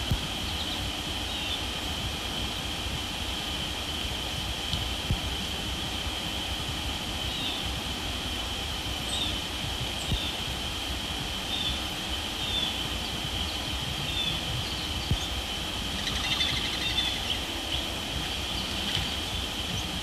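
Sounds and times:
insect chorus drone: 0.0 - 20.0
rapid pulsed call: 11.4 - 20.0.

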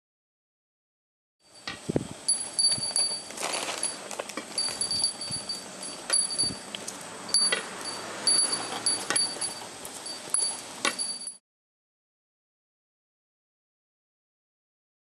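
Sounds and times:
small bell jingling: 2.3 - 6.7, 7.3 - 11.4.

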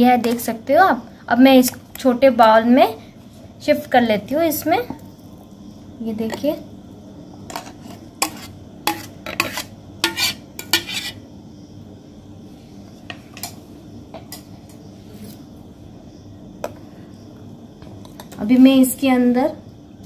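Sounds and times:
metal spoon scraping steel jar: 7.5 - 11.2.

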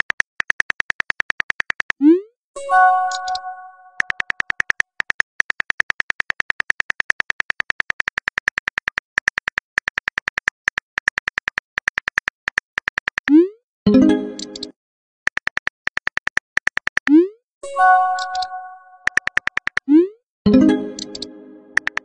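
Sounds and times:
phone keyboard clicks: 0.0 - 2.0, 3.1 - 13.3, 15.3 - 17.1, 18.2 - 19.9, 20.9 - 22.0
message alert chime: 2.6 - 4.1, 13.9 - 14.7, 17.6 - 19.2, 20.5 - 22.0.

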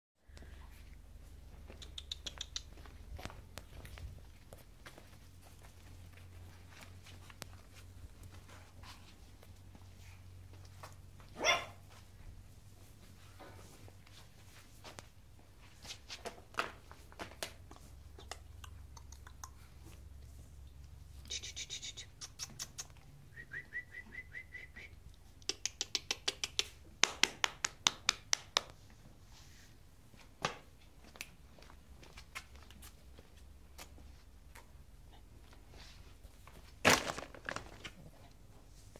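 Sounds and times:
high whistle-like tone: 23.3 - 25.0.

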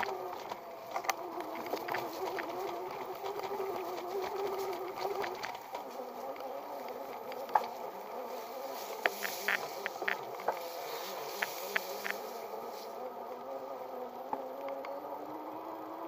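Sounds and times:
sharp clicks from bike: 0.0 - 7.8, 8.9 - 12.3, 14.3 - 15.0
electric hub motor whining: 0.0 - 16.0.

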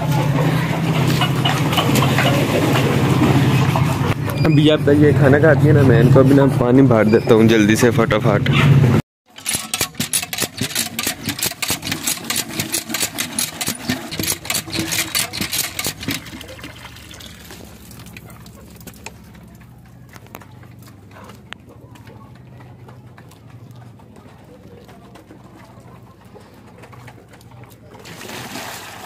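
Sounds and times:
water pouring into plastic bucket: 14.7 - 18.2, 28.0 - 29.0.

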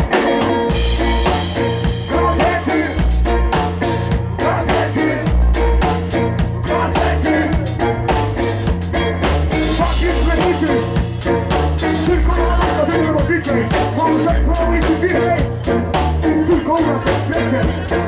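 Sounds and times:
punk band playing: 0.0 - 18.0.

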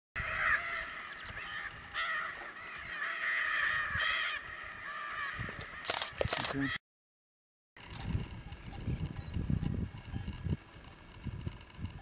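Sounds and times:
macaws squawking: 0.2 - 6.8.

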